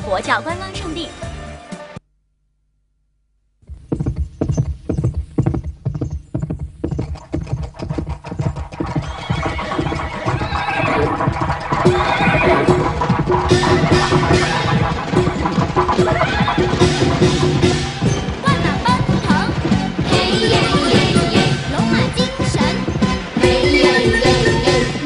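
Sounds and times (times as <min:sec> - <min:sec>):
horses galloping: 0:03.6 - 0:25.0
horse neighing: 0:07.2 - 0:18.8
festive song: 0:12.5 - 0:25.0.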